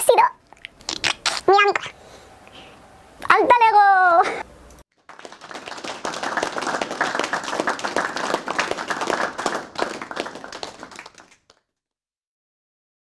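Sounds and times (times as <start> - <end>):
hands clapping: 5.0 - 11.7.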